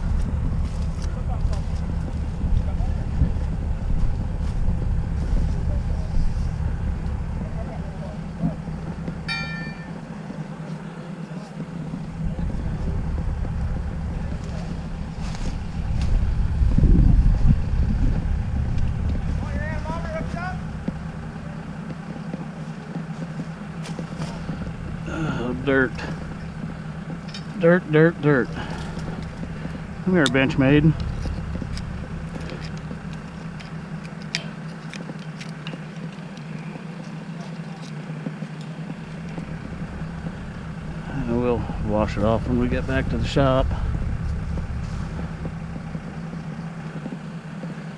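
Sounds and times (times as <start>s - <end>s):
wind buffeting microphone: 0.0s - 9.2s, 11.6s - 34.2s, 38.8s - 47.9s
diesel engine idling: 0.0s - 47.9s
hand tool clicking and scraping: 28.5s - 39.6s.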